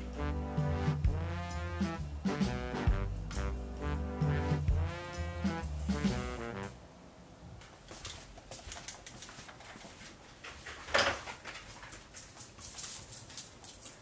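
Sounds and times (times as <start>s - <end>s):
dog claws clicking on wood floor: 8.0s - 14.0s.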